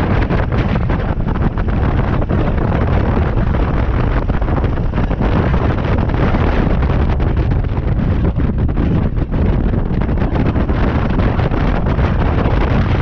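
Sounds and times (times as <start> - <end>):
road noise: 0.0 - 13.0
wind rumbling on microphone: 0.0 - 13.0.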